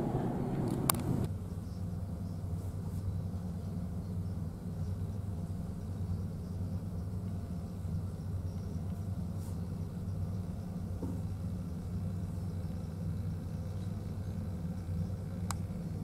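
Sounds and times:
ship engines humming: 0.0 - 1.3.

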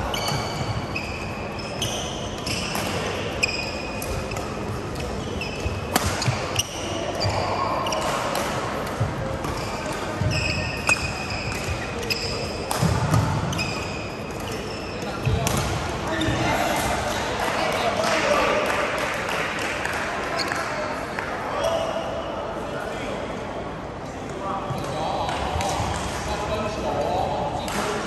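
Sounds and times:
shoes squeaking on court floor: 0.0 - 17.2
rackets striking shuttlecocks: 3.9 - 6.8.

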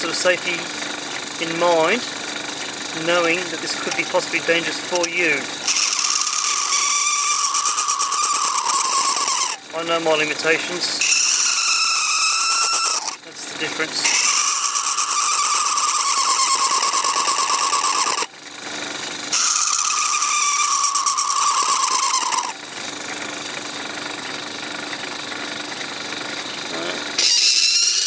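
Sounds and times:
lathe running: 0.0 - 28.0
knife blade squealing on plastic: 5.0 - 9.8, 11.0 - 13.2, 14.0 - 18.4, 19.3 - 22.6, 27.2 - 28.0.

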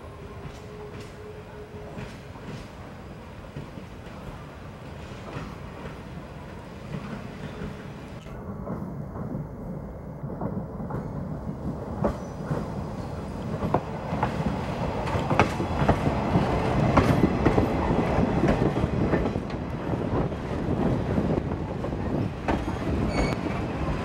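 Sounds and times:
train rumble: 0.0 - 24.0
train wheels clattering over rail joints: 13.5 - 24.0.

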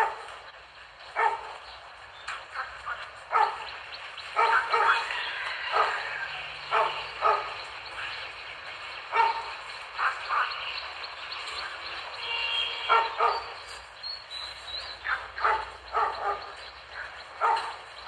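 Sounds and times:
dog barking: 0.0 - 0.4, 1.1 - 1.6, 3.3 - 3.7, 4.3 - 7.6, 9.1 - 9.6, 12.8 - 13.6, 15.1 - 17.9.

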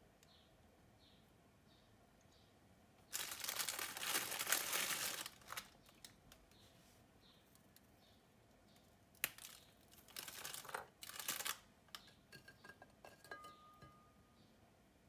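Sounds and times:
plastic packet crinkling: 3.1 - 6.4, 9.2 - 11.7.

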